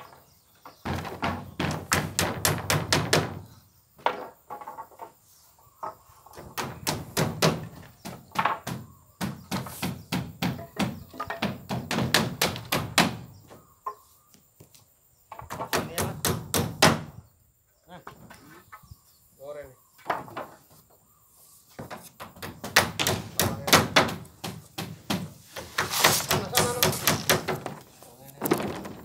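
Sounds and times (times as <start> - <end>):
hammer striking nails into wood: 0.9 - 3.4, 6.6 - 13.2, 22.3 - 27.8.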